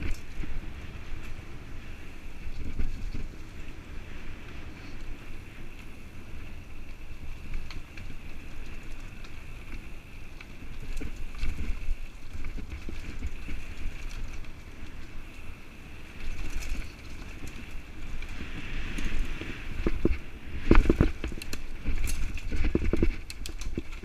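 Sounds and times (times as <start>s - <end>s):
bike clicks and rattles: 0.0s - 24.0s
bike tyres on dirt: 0.0s - 24.0s
wind rumbling on microphone: 0.0s - 24.0s.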